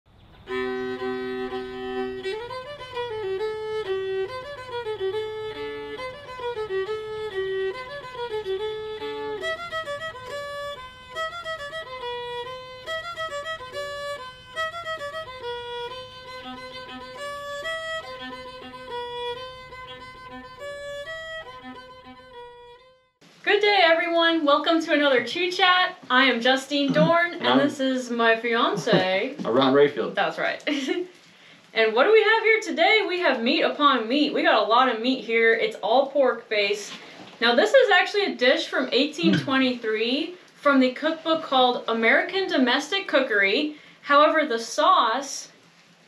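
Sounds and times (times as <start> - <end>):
lively fiddle tune: 0.4 - 29.9, 39.1 - 43.5.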